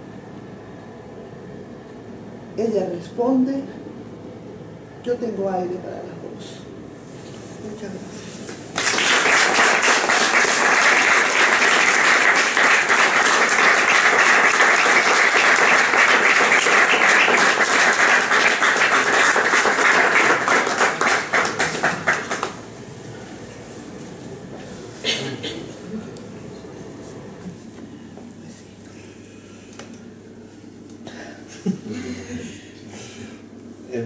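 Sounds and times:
audience applauding: 8.7 - 22.6.

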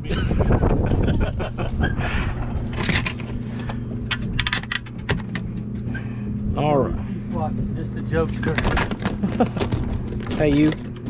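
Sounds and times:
steady low hum: 0.0 - 11.0
handling clicks taps and scrapes: 2.7 - 5.8, 8.3 - 11.0.

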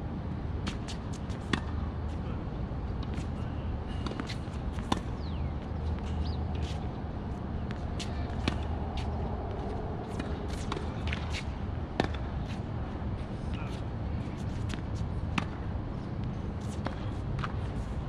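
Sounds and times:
tennis balls hit and bouncing: 0.6 - 2.2, 2.9 - 13.8, 14.4 - 17.8
shuffling footsteps: 5.6 - 11.6.

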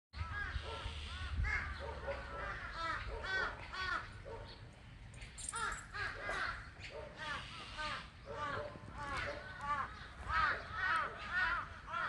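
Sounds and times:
crows cawing: 0.2 - 4.2, 5.4 - 12.0.

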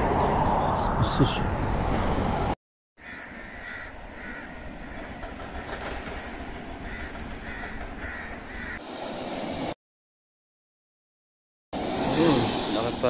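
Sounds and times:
sea waves rushing: 8.5 - 9.8, 11.8 - 13.0.

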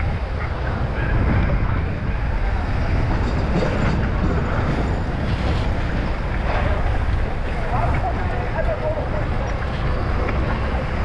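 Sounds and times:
motorbike engines: 0.0 - 11.0
road noise: 0.0 - 11.0
wind rumble on microphone: 0.0 - 11.0.

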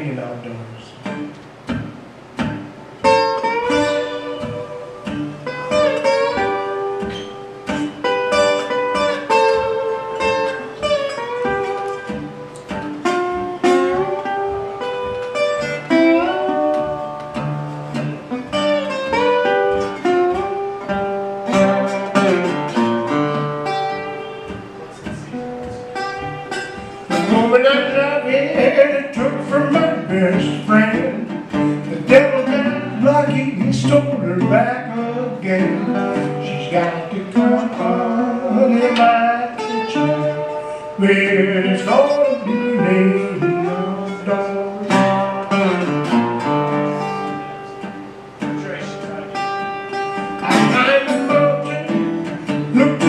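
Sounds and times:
resonator guitar slide playing: 0.9 - 53.0
person singing: 27.1 - 45.4, 50.4 - 53.0.

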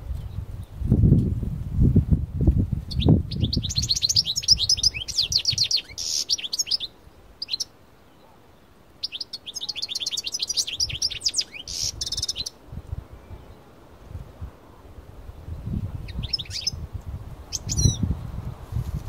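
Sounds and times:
goldfinch twittering song: 2.9 - 8.2, 9.0 - 12.6, 15.9 - 18.2.

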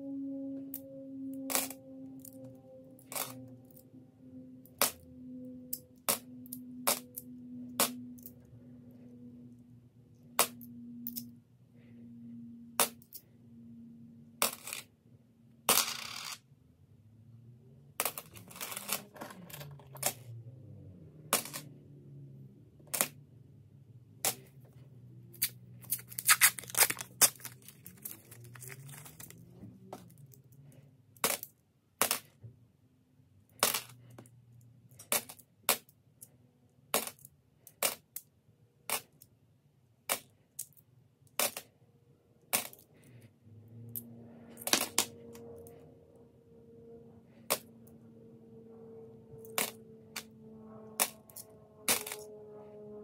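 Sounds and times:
coins clinking: 15.7 - 16.4.

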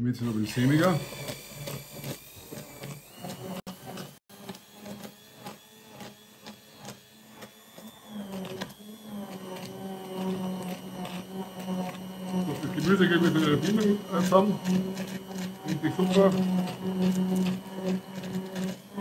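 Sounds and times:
immersion blender motor whine: 0.0 - 19.0
blade churning in sauce: 0.1 - 19.0.

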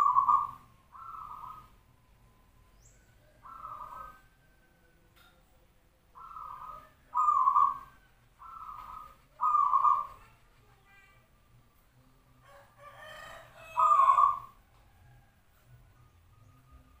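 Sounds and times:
dove cooing: 0.0 - 1.8, 3.3 - 4.4, 6.1 - 10.4, 13.1 - 14.6.

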